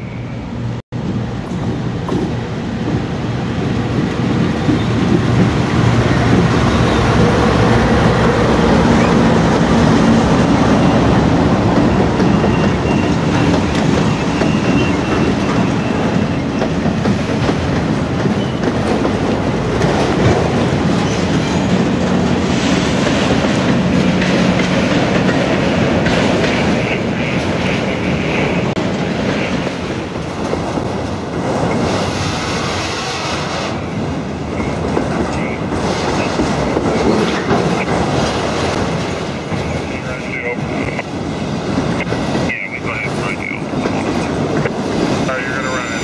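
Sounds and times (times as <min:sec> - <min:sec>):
diesel locomotives droning: 0:00.0 - 0:46.0
train wheels clattering on rails: 0:01.5 - 0:46.0
high wheel squeal: 0:11.8 - 0:16.8.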